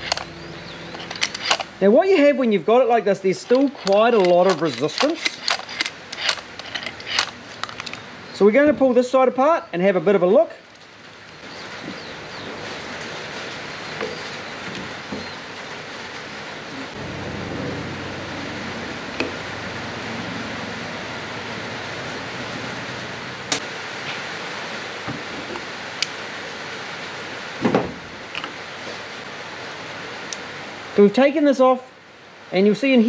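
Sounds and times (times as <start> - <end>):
small metal clicks of tools: 1.0 - 1.7, 3.5 - 8.0
low whir: 16.7 - 23.6.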